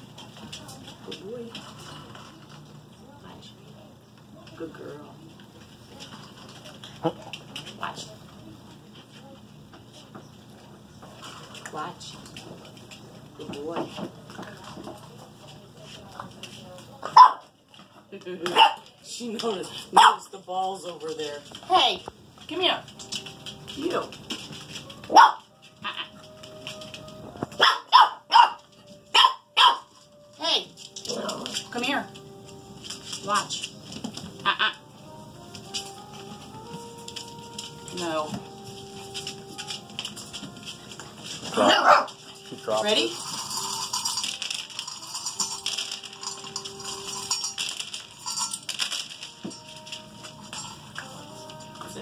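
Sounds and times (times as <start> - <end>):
puppies crunching dry kibble: 0.0 - 52.0
kibble clicking on wooden floor: 0.1 - 3.0, 4.2 - 9.4, 11.1 - 30.1, 30.7 - 52.0
puppies yipping: 25.1 - 26.2, 27.5 - 29.9, 34.3 - 35.0.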